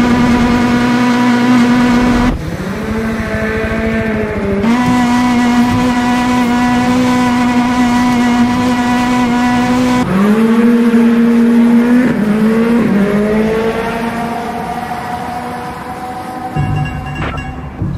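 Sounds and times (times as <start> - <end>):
car engine revving: 0.0 - 17.9.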